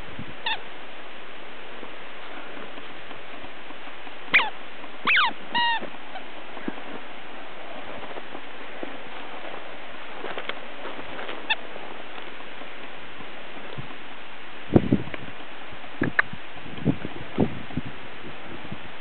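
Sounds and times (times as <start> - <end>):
squeaky toy squeaking: 4.3 - 5.8.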